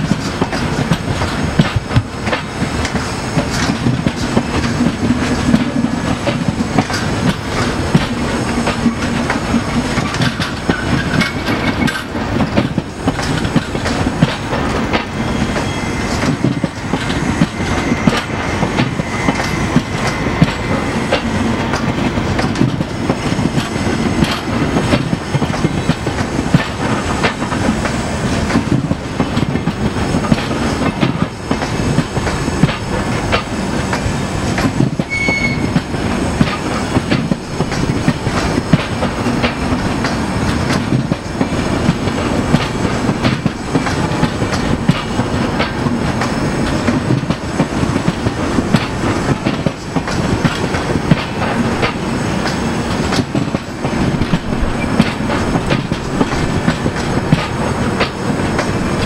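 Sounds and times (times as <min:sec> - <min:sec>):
train wheels rumbling on rail: 0:00.0 - 0:59.0
wheels clacking over rail joints: 0:00.0 - 0:59.0
high squeal: 0:15.2 - 0:21.1, 0:35.1 - 0:35.8.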